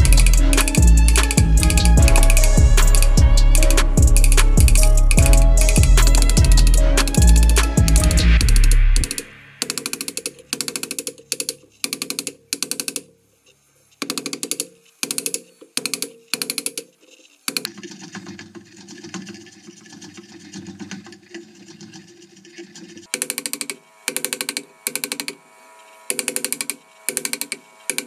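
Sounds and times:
hand chisel scraping wood: 0.0s - 8.3s.

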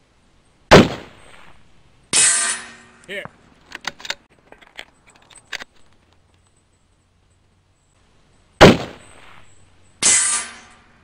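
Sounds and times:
rifle shot: 0.7s - 1.6s, 8.6s - 10.8s.

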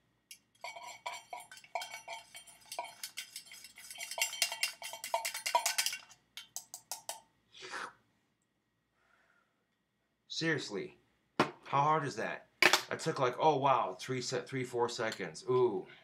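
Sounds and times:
metal tool clinking in metal mug: 0.3s - 7.2s.

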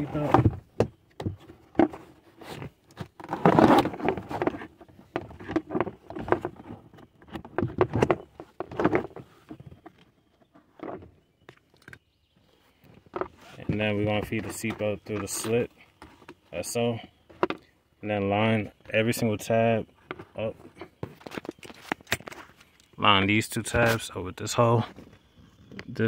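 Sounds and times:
plastic trim knocks and scraping: 0.0s - 12.0s.

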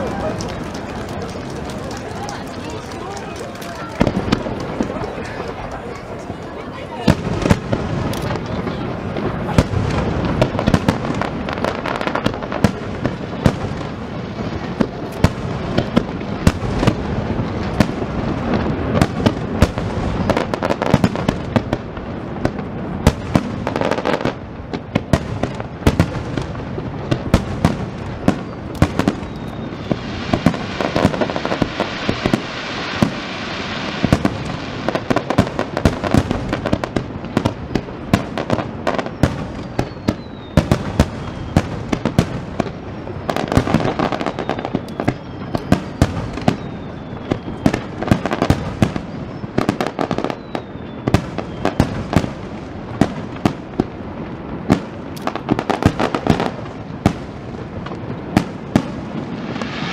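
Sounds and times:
fireworks booming and cracking: 0.0s - 59.9s
fireworks crackling: 0.0s - 59.9s.

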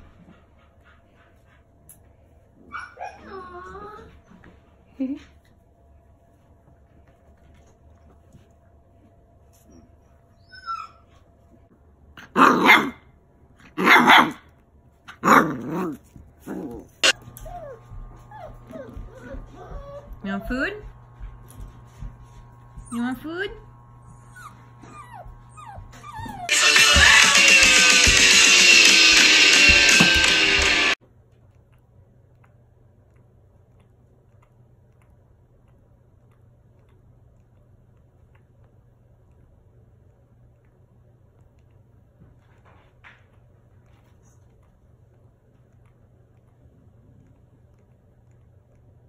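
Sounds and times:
low room hum: 0.0s - 49.0s
puppy barking: 12.2s - 14.5s, 15.1s - 16.0s, 17.0s - 20.3s.

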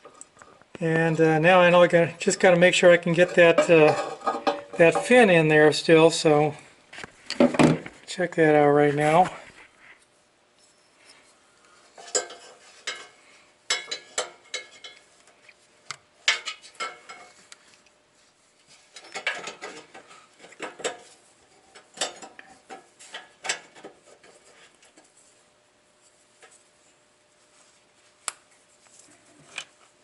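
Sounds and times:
sheet metal parts clinking: 2.2s - 5.4s, 12.0s - 15.1s, 16.2s - 17.4s, 18.9s - 21.1s, 21.7s - 24.5s.

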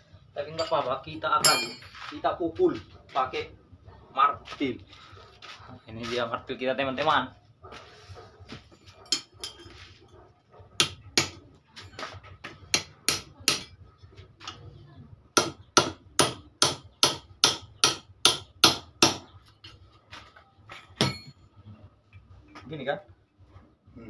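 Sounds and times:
hammer striking iron rod on anvil: 1.4s - 1.9s, 10.8s - 11.4s, 12.7s - 13.8s, 15.4s - 19.3s, 21.0s - 21.4s.

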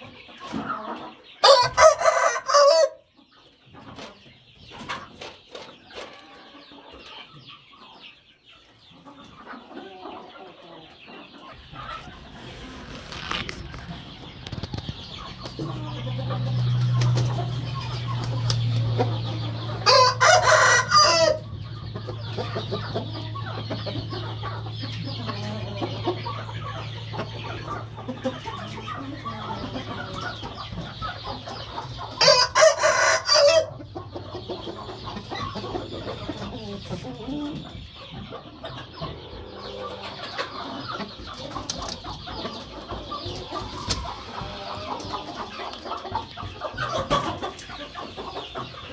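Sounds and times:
chickens clucking: 0.0s - 48.9s
rooster crowing: 1.4s - 3.0s, 19.8s - 21.5s, 32.2s - 33.7s.

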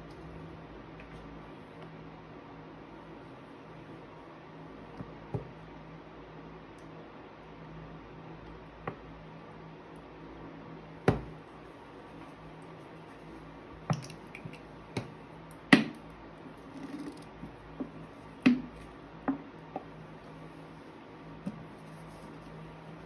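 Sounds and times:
soft rustle: 20.1s - 23.0s.

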